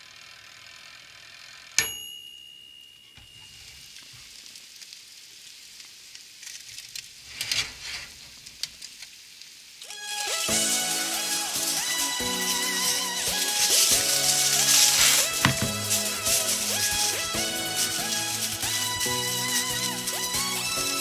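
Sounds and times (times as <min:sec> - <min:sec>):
timer bell ding: 0:01.8 - 0:03.8
fish sizzling on foil: 0:03.1 - 0:21.0
fat crackling and spitting: 0:10.4 - 0:20.7.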